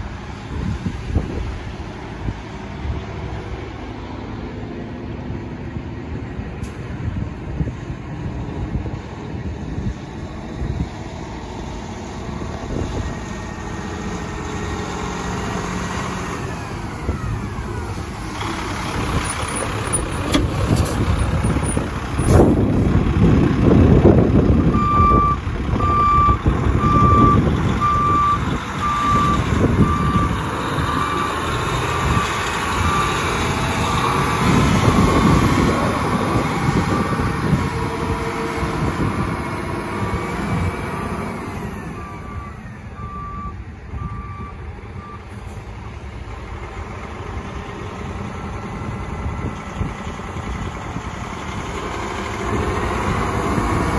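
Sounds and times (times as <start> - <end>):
truck diesel engine running: 0.0 - 53.9
reversing alarm beeping: 24.7 - 31.4, 41.7 - 45.3.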